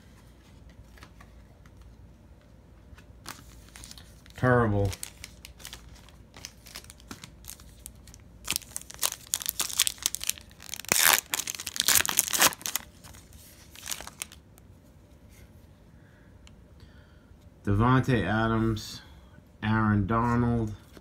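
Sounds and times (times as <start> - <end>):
foil wrapper crinkling and tearing: 3.3 - 14.4.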